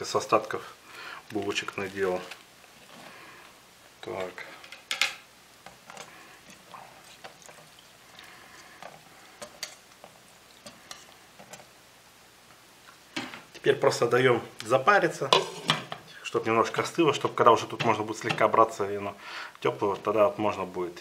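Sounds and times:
wire whisk scraping a metal pot: 8.8 - 11.7.

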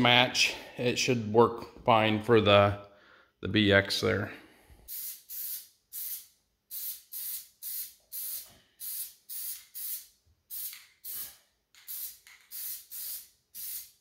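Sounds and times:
spray paint can hissing: 4.9 - 14.0.

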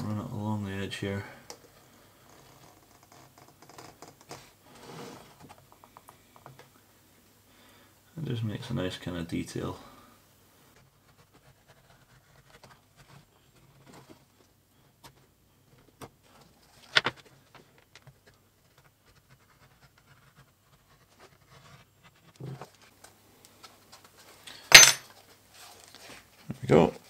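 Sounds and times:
tool scratching leather: 10.8 - 13.8, 19.0 - 22.7.

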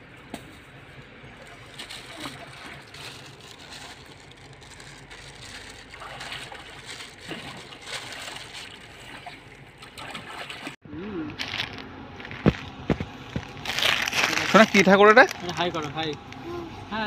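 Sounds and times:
river water splashing: 1.4 - 10.8.

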